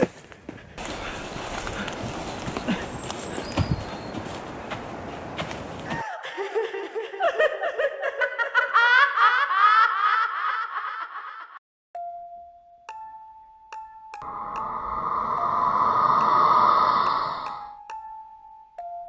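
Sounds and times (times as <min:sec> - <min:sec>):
eerie layered laugh-like sound: 0:06.0 - 0:11.6, 0:14.2 - 0:17.7
bell-like tones: 0:12.0 - 0:19.0
rustling hiss: 0:14.3 - 0:17.7.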